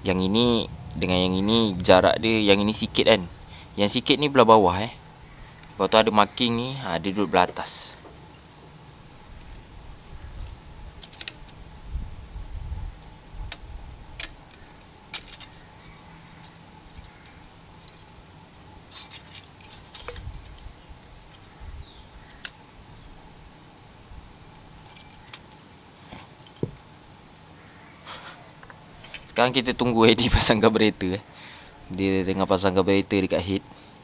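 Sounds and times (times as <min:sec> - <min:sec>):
cam chain jangling and clicking: 0:16.4 - 0:20.7, 0:24.5 - 0:26.5
light knocks: 0:26.6 - 0:26.8.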